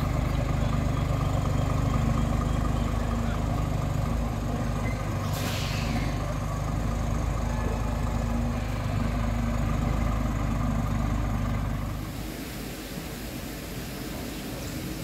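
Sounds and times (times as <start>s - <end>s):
truck diesel engine idling: 0.0s - 15.0s.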